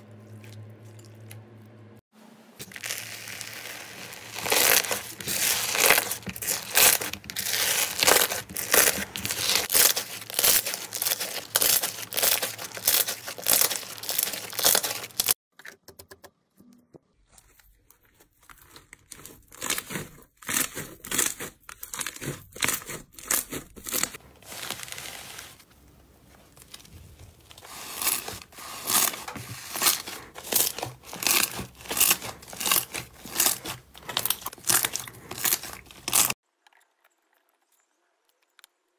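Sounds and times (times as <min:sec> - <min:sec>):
slime crackling and popping: 0:02.6 - 0:15.4, 0:26.6 - 0:36.4
squelchy slime kneading: 0:02.6 - 0:15.4, 0:17.1 - 0:36.4.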